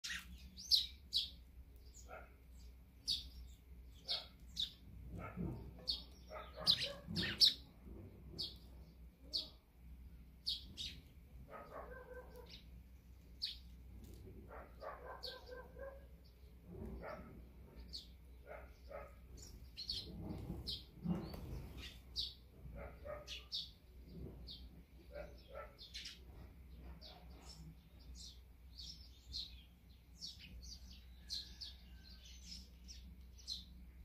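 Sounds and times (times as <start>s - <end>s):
sparrows chirping: 0.0s - 34.0s
low rough bird calls: 1.9s - 7.7s.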